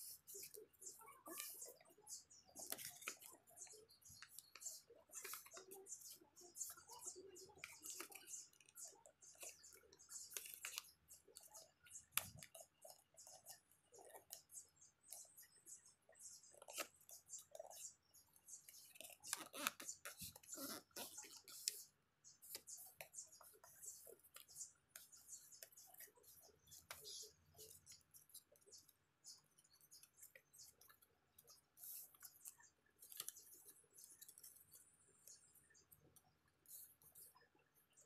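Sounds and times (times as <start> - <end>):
paper folding and crinkling: 2.5 - 7.0.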